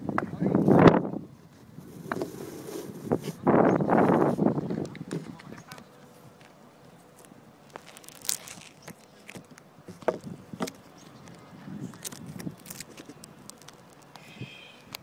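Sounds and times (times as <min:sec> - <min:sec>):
footsteps on asphalt: 0:04.1 - 0:14.2.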